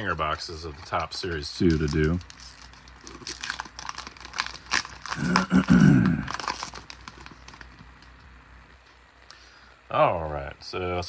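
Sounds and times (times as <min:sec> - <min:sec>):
foil wrapper crinkling and tearing: 0:00.0 - 0:08.2.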